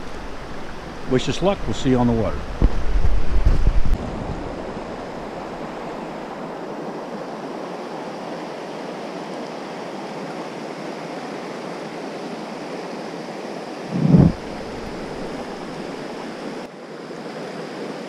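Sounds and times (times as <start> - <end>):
river rushing over rocks: 4.1 - 18.0
low thump: 13.9 - 15.4.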